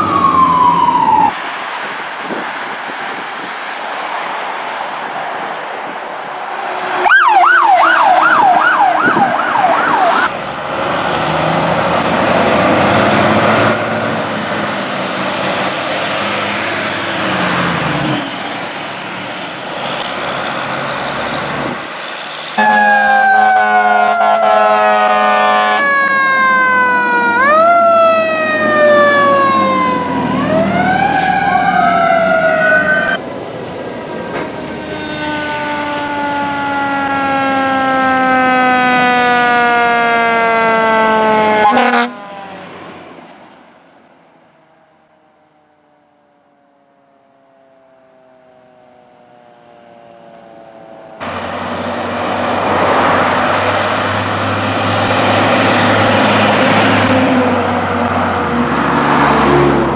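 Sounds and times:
electronic siren yelping: 0.0s - 1.4s, 7.0s - 10.3s, 22.6s - 33.2s, 35.1s - 42.7s
fire truck noise: 0.0s - 59.9s.

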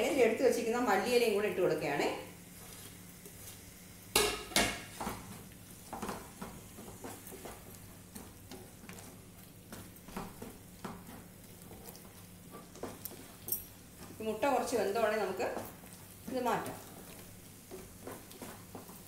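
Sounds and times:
wooden spatula scraping pan: 4.8s - 19.0s.

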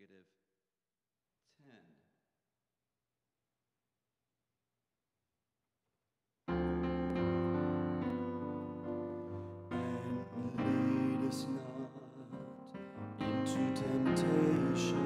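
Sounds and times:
sustained piano chords: 6.5s - 15.0s.

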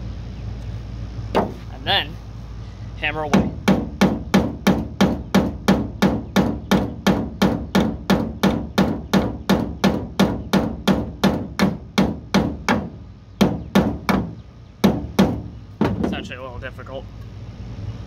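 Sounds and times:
hammer striking nail: 3.3s - 16.2s.

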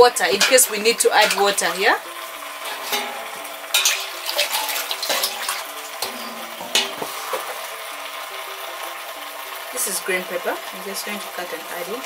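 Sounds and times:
metal kitchenware clinking: 0.2s - 1.8s, 2.6s - 7.7s
metal tray knock: 2.8s - 4.0s, 6.0s - 7.6s.

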